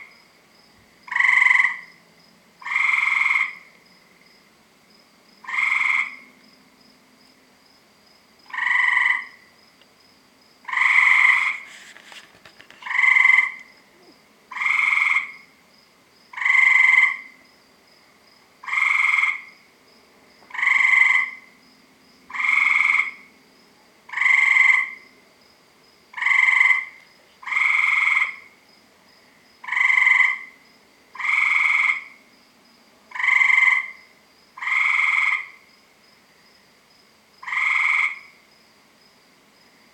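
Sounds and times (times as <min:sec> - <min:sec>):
tree frog calling: 0:01.1 - 0:02.0, 0:02.6 - 0:03.8, 0:05.4 - 0:06.4, 0:08.4 - 0:09.5, 0:10.6 - 0:15.6, 0:16.3 - 0:17.5, 0:18.6 - 0:19.7, 0:20.5 - 0:21.6, 0:22.3 - 0:23.3, 0:24.1 - 0:25.2, 0:26.1 - 0:28.6, 0:29.6 - 0:32.2, 0:33.1 - 0:35.7, 0:37.4 - 0:38.4.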